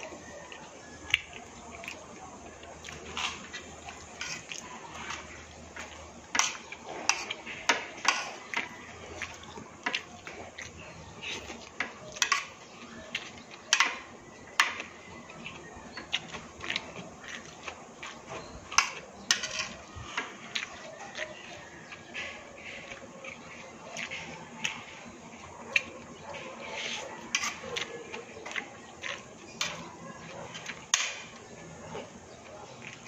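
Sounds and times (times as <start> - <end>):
chewing and mouth sounds: 0.0 - 7.4, 8.1 - 13.4, 15.3 - 19.1, 20.3 - 24.9, 25.6 - 30.8.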